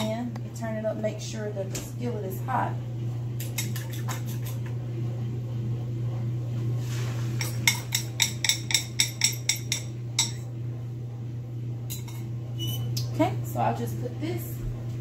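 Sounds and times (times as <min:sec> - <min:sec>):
fork clinking against ceramic bowl: 0:07.4 - 0:10.4, 0:11.9 - 0:12.3.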